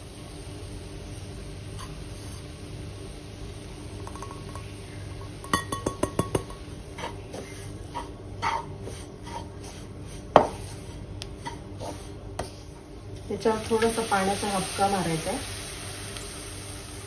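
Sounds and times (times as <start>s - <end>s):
spatula knocking and scraping pan: 5.4s - 12.6s.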